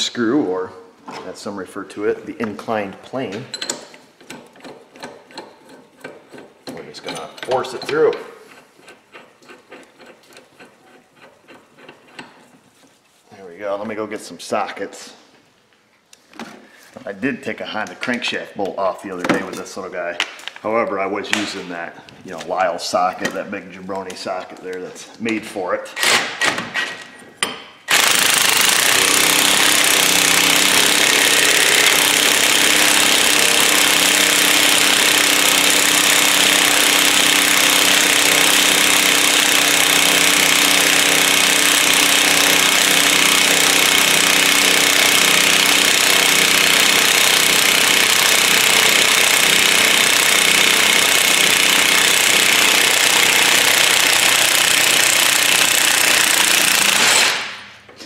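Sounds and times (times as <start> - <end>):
impact wrench hammering: 27.4 - 57.7.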